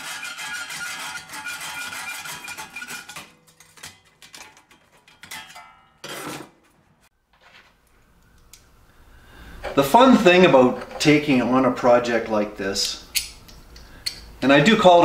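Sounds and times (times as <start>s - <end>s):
hacksaw cutting ringing steel plate: 0.0s - 6.5s.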